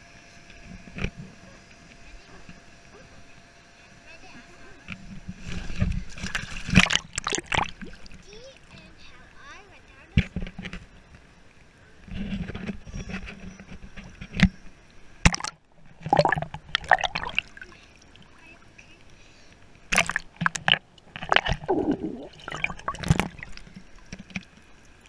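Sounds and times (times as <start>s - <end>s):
water sloshing and splashing: 5.0s - 8.9s, 15.2s - 25.0s.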